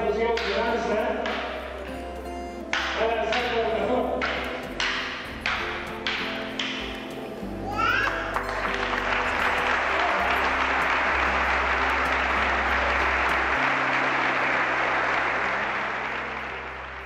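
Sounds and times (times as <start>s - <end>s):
low background music: 0.0s - 17.0s
audience applauding: 7.8s - 17.0s.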